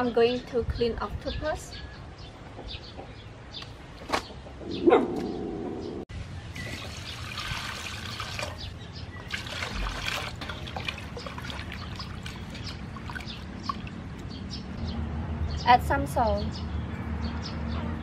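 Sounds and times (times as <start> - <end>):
water pouring into basin: 6.6 - 14.0
hands sloshing in water: 9.2 - 14.0.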